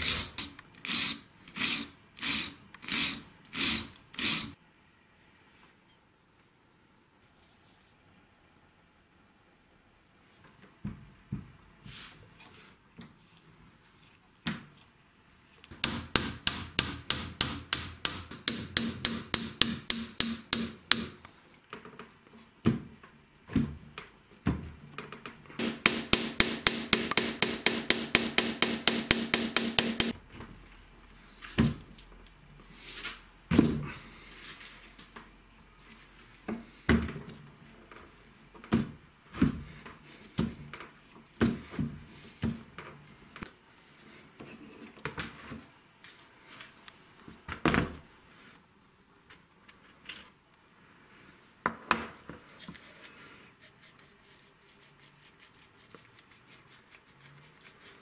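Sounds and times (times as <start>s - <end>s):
hammer tapping steel punch: 15.8s - 21.2s, 25.6s - 30.2s.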